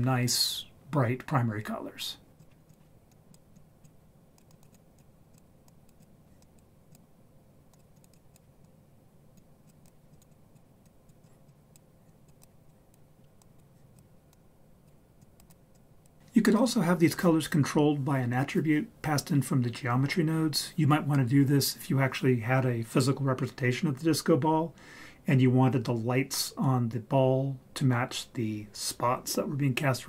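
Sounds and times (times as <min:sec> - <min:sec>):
computer mouse clicks: 0:02.4 - 0:07.1, 0:07.7 - 0:16.2.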